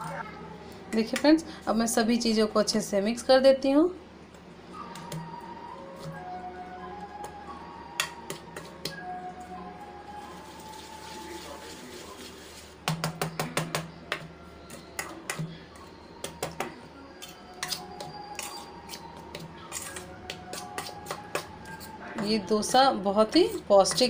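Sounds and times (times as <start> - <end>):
whisk clinking against steel bowl: 17.2 - 22.3.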